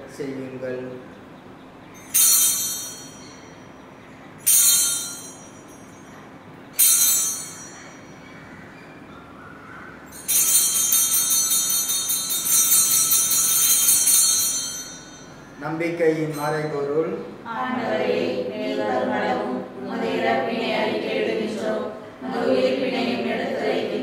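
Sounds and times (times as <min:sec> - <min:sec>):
altar bells ringing: 0:01.9 - 0:08.4, 0:10.0 - 0:17.3.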